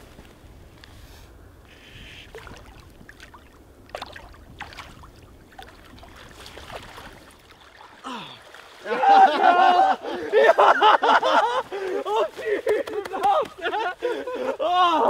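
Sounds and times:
flowing water rumble: 0:00.0 - 0:12.2
wind: 0:00.0 - 0:15.0
water splashing from wading: 0:02.0 - 0:10.4.

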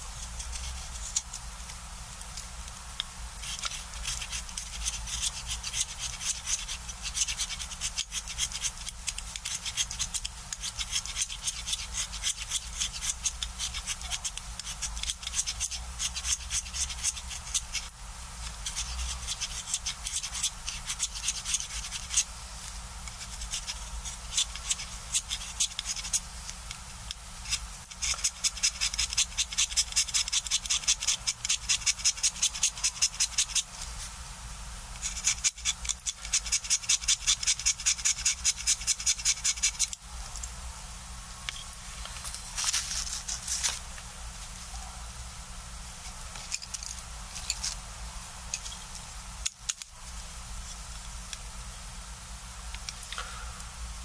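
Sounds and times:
craft knife scraping pencil: 0:00.2 - 0:01.4, 0:03.4 - 0:22.3, 0:23.0 - 0:26.2, 0:27.4 - 0:33.8, 0:35.0 - 0:40.0.

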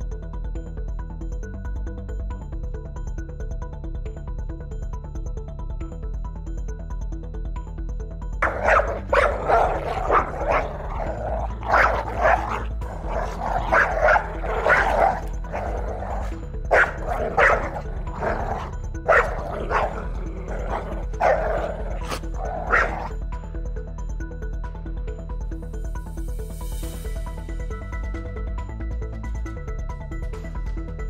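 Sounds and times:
background music: 0:00.0 - 0:31.0
wild dogs yelping and chattering: 0:08.4 - 0:23.1.

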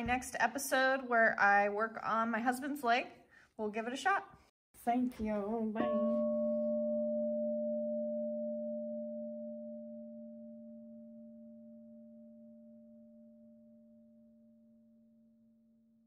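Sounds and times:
low ringing tone: 0:05.8 - 0:16.0.

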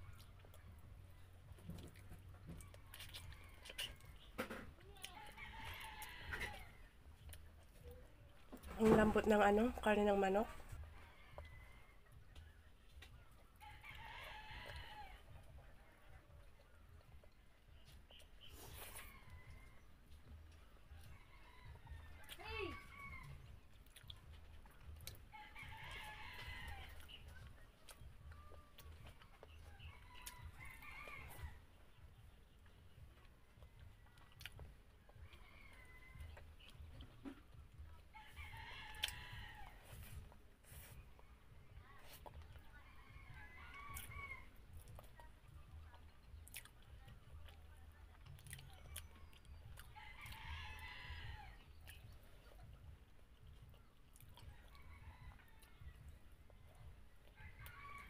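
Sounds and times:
faint rooster crowing: 0:01.7 - 0:07.0, 0:10.6 - 0:12.4, 0:13.6 - 0:15.9, 0:18.2 - 0:23.6, 0:25.3 - 0:27.2, 0:28.0 - 0:31.7, 0:33.6 - 0:37.0, 0:38.1 - 0:45.0, 0:49.1 - 0:51.8, 0:54.4 - 0:58.0
chewing and wet mouth clicks: 0:01.8 - 0:04.2, 0:07.2 - 0:08.0, 0:23.2 - 0:25.2, 0:26.7 - 0:30.7, 0:32.6 - 0:37.1, 0:38.8 - 0:39.2, 0:43.6 - 0:50.4, 0:51.7 - 0:58.0.

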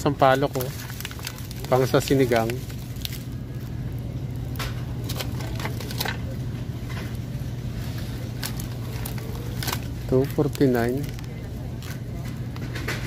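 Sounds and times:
plastic packages crinkling: 0:00.0 - 0:06.5, 0:07.2 - 0:12.7
freezer case humming: 0:00.0 - 0:13.0.

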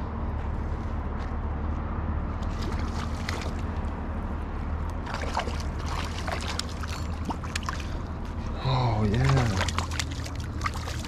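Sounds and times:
fish splashing in water: 0:02.4 - 0:03.9, 0:05.0 - 0:08.2, 0:09.0 - 0:11.0.

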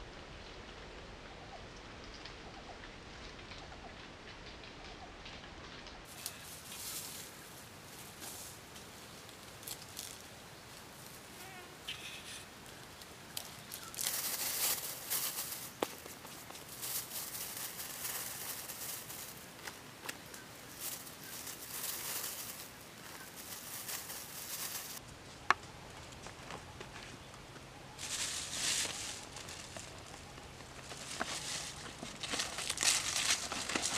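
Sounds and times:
plastic bags rustling: 0:06.1 - 0:11.4, 0:12.2 - 0:25.0, 0:28.0 - 0:33.9.

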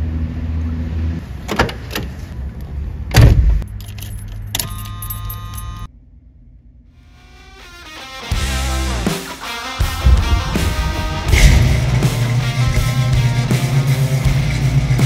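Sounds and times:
car engine rumble: 0:00.0 - 0:07.6, 0:09.8 - 0:15.0
loud thump: 0:03.1 - 0:03.6, 0:10.0 - 0:13.8
keys jangling in ignition: 0:03.6 - 0:05.9
steady hum: 0:09.8 - 0:15.0.

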